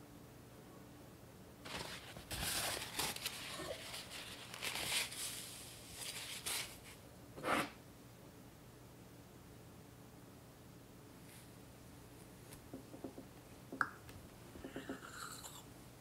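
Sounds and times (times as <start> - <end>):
kitchen rustling and scraping: 1.7 - 7.8.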